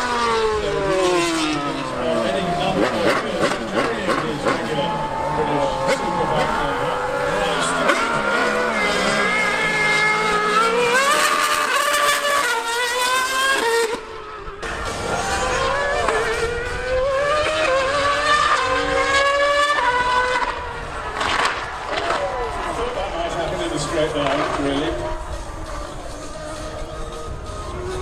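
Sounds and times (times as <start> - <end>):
motorcycle engine accelerating: 0.0 - 28.0
racing car engine revving: 0.0 - 28.0.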